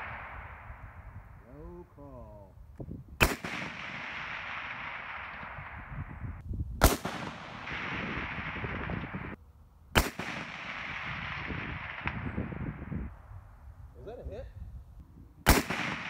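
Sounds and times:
rifle shots echoing: 0.0s - 1.0s, 3.2s - 6.2s, 6.8s - 9.4s, 10.0s - 12.8s, 15.4s - 16.0s.

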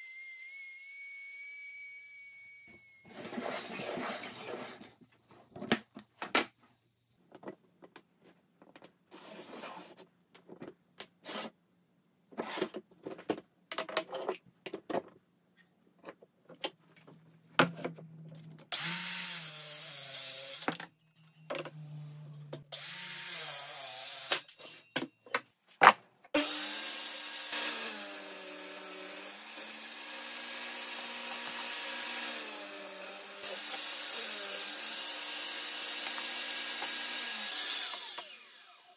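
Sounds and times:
circular saw cutting a board: 18.7s - 20.8s, 21.4s - 24.8s, 26.4s - 38.9s
table saw running: 26.4s - 38.9s.

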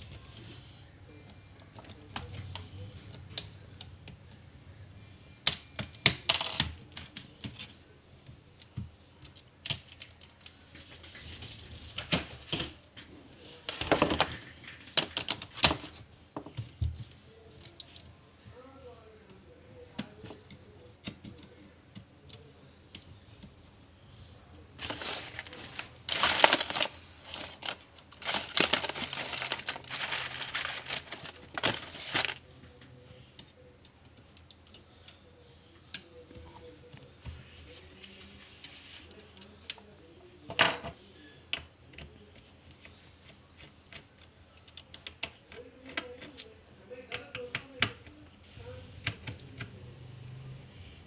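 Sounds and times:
plastic clicking and scraping: 24.8s - 33.6s.

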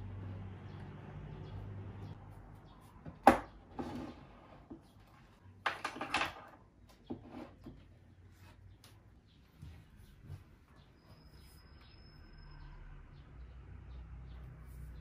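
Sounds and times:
wooden utensils clattering: 5.6s - 7.8s.

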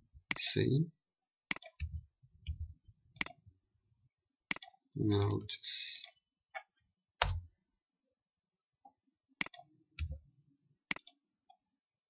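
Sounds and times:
computer mouse clicks: 1.5s - 2.6s, 3.2s - 3.4s, 4.5s - 7.4s, 9.4s - 10.2s, 10.9s - 11.6s.

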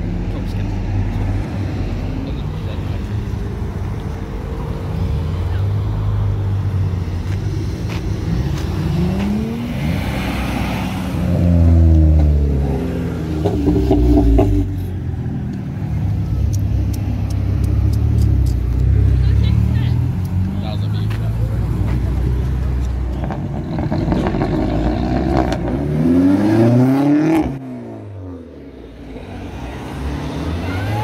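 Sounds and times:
cars accelerating past: 0.0s - 31.0s
engine revving: 7.9s - 14.9s, 23.2s - 28.4s, 29.3s - 31.0s.

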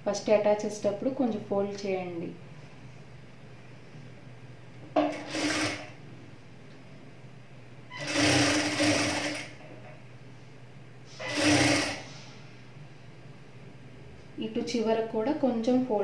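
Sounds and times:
industrial sewing machine stitching: 5.1s - 6.0s, 8.0s - 9.6s, 11.1s - 12.2s.

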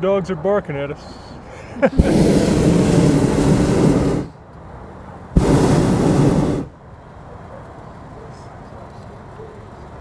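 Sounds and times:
propane burner blasts: 1.7s - 4.4s, 5.3s - 6.8s.

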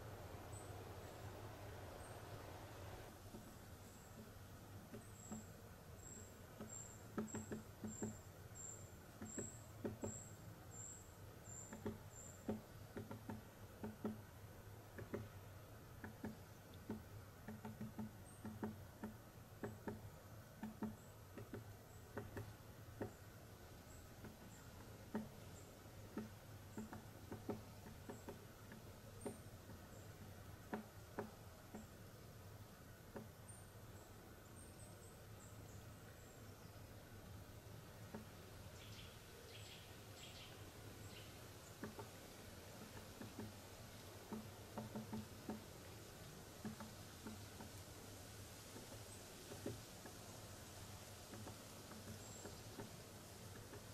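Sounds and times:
low steady background hum: 0.0s - 53.9s
soft taps and rustles: 3.2s - 5.6s, 20.6s - 23.2s, 24.2s - 31.9s, 38.1s - 38.4s, 41.7s - 53.9s.

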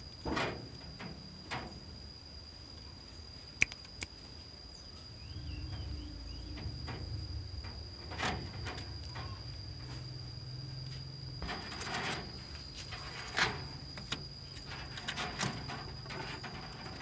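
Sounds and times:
cricket trilling: 0.0s - 17.0s
sharp click: 3.6s - 4.2s
low rumble: 5.2s - 11.4s.

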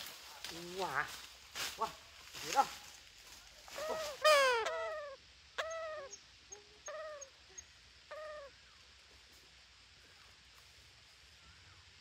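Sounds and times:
parrot harsh calls: 3.8s - 6.2s.

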